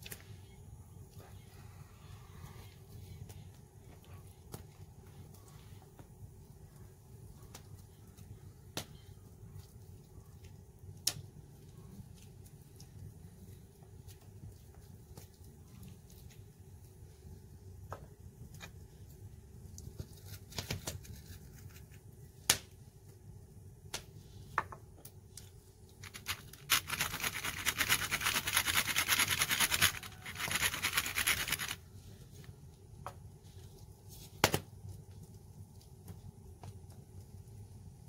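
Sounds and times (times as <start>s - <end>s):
pepper mill grinding: 26.0s - 31.8s.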